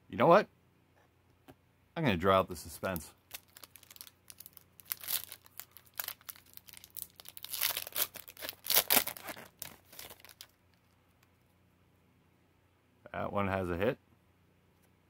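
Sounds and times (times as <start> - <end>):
cards rustling: 2.8 - 11.3
foil wrapper tearing and crinkling: 2.9 - 10.6.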